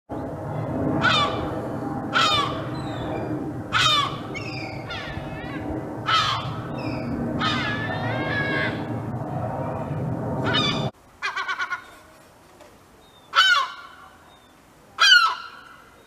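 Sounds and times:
fainter gull calls: 1.0s - 1.5s, 2.1s - 3.0s, 3.7s - 8.9s, 10.4s - 12.0s, 13.3s - 14.0s, 15.0s - 15.7s
gull alarm calls: 1.0s - 8.9s, 10.4s - 11.9s.

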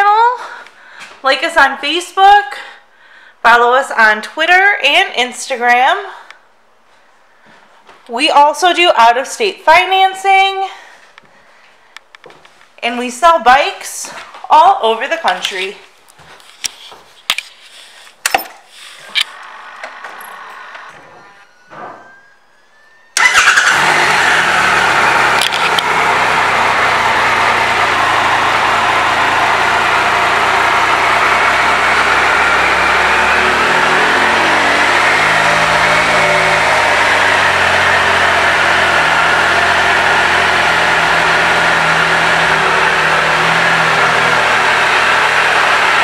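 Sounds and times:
motorcycle engine starting and idling: 19.2s - 21.4s, 23.2s - 46.0s.

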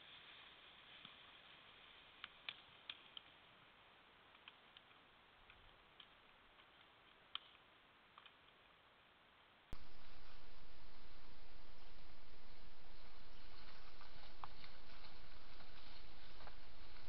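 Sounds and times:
faint microphone hiss: 7.6s - 17.0s.

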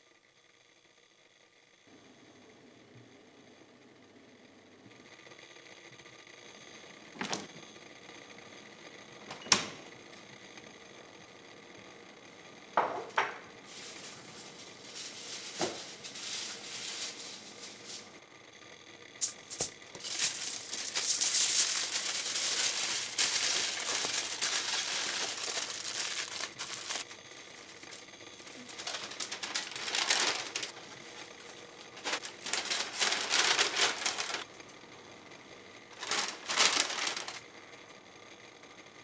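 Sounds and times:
paper bag rustling: 13.7s - 18.1s, 19.2s - 34.5s, 35.9s - 37.4s
aluminium foil crinkling: 13.7s - 18.2s, 19.2s - 34.6s, 35.9s - 37.4s.

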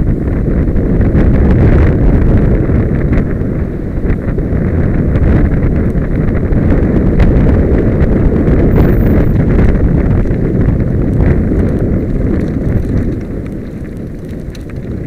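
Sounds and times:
wind rushing over microphone: 0.0s - 15.0s
tyres crunching over gravel: 8.4s - 15.0s.

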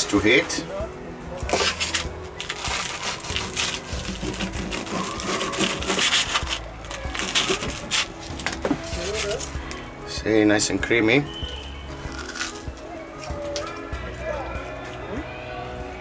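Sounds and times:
knife cutting crunchy crust: 12.1s - 12.6s.

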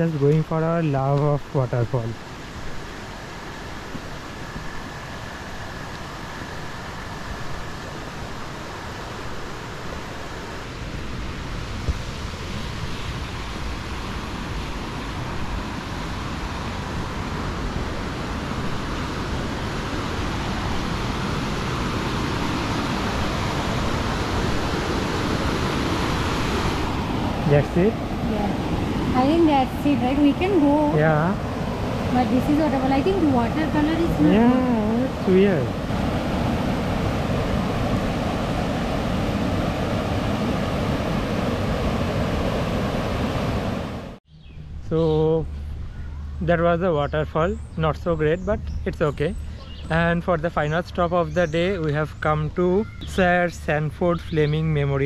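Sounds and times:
waterfall rushing over boulders: 32.0s - 44.2s.

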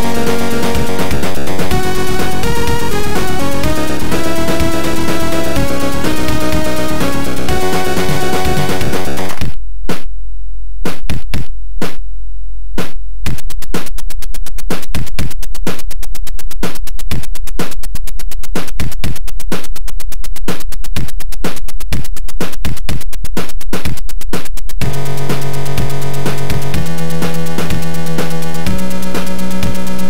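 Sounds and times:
sampled percussion hits: 0.0s - 10.1s.

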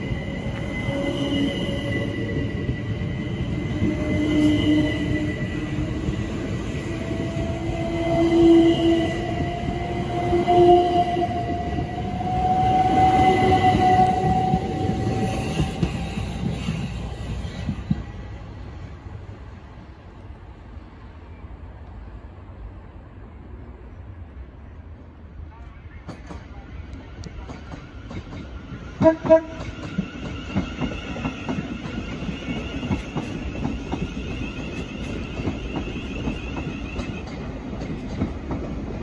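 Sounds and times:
train traction motor whine: 0.0s - 18.8s
wheel and rail rumble: 0.0s - 39.0s.

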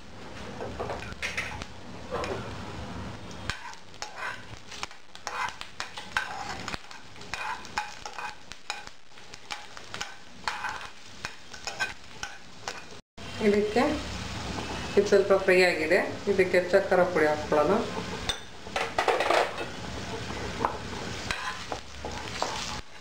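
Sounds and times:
food sizzling in a pan: 0.0s - 23.0s
spoon scraping a pan: 0.8s - 2.5s, 3.5s - 8.9s, 9.5s - 13.0s, 17.1s - 23.0s.

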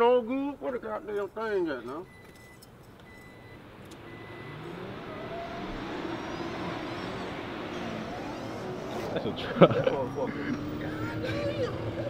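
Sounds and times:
truck engine accelerating: 2.9s - 12.0s.

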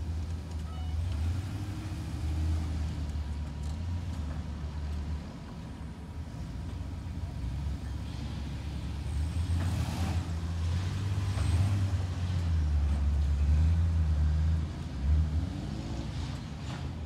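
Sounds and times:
buggy engine revving: 8.9s - 16.8s.

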